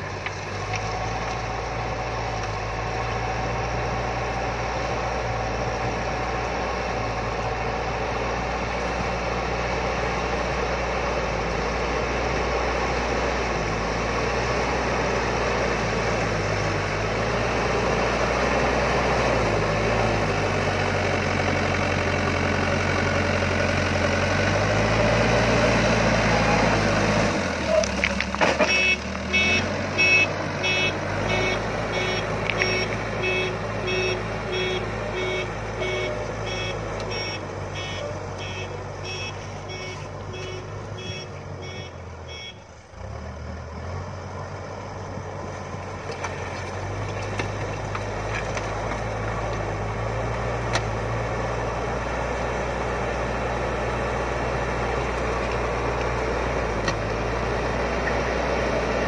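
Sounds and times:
diesel engine running: 0.0 - 59.0
reversing alarm beeping: 28.7 - 42.7.

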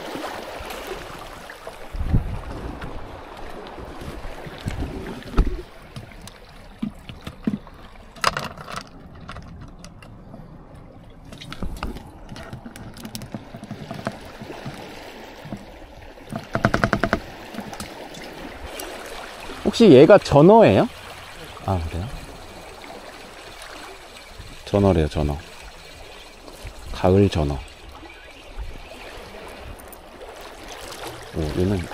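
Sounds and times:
wind on microphone: 0.6 - 5.8.

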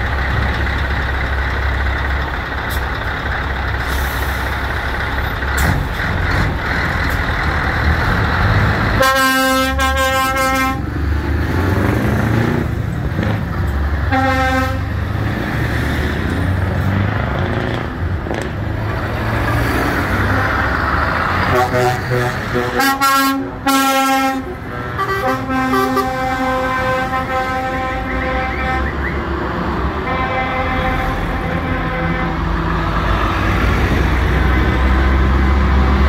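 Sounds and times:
road noise: 0.0 - 36.0
truck engines running: 0.0 - 36.0
truck horn blast: 8.9 - 11.0, 14.1 - 15.0, 21.4 - 29.2, 29.9 - 32.7.

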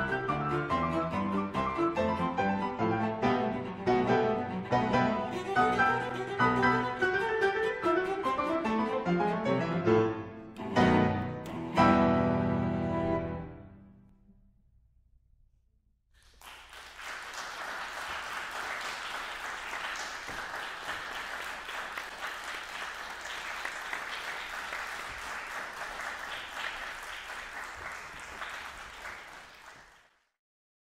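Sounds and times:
audience applauding: 16.2 - 30.3.

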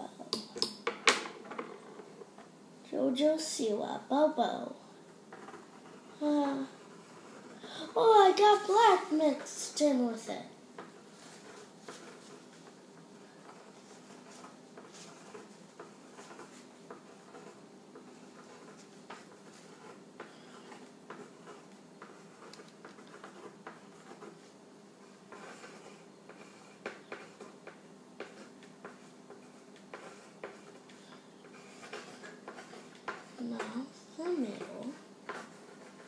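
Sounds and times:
low room hum: 0.0 - 36.0
paintbrush taps and scrapes: 13.4 - 24.5.

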